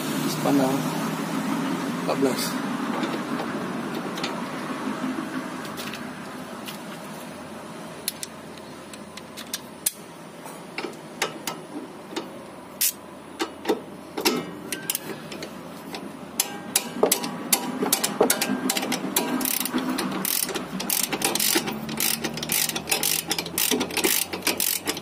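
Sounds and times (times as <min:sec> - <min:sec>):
socket ratchet clicking: 0:16.4 - 0:25.0.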